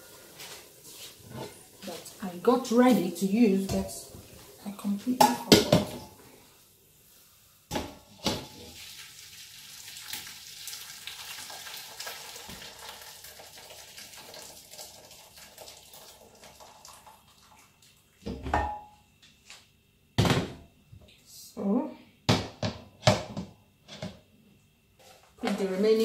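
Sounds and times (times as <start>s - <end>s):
metal pots clanking: 5.2s - 6.2s, 7.7s - 8.7s, 18.4s - 18.9s
liquid pouring and splashing: 8.4s - 18.2s.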